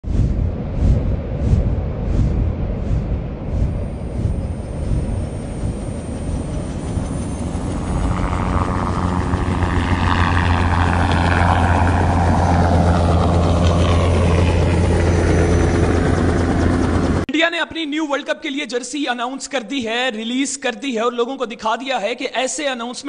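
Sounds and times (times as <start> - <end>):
helicopter rotor thud: 0.3 - 17.2
helicopter whine: 0.4 - 17.3.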